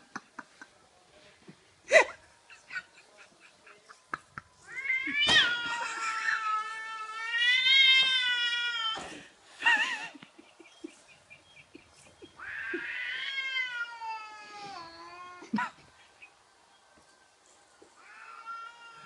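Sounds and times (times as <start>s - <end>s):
cat meowing: 4.7s - 9.0s, 12.4s - 15.4s, 18.0s - 19.0s
cat yowling: 4.7s - 9.0s, 12.4s - 15.5s, 18.0s - 19.0s.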